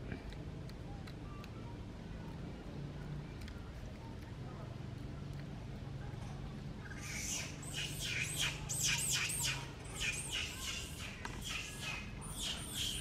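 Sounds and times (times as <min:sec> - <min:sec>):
baby monkey squealing: 0:06.8 - 0:13.0.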